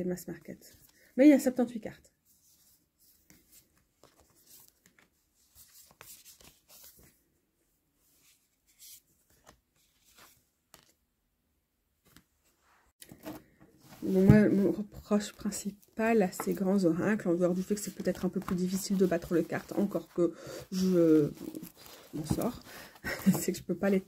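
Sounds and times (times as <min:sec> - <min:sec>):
cards rustling: 0:17.5 - 0:24.0.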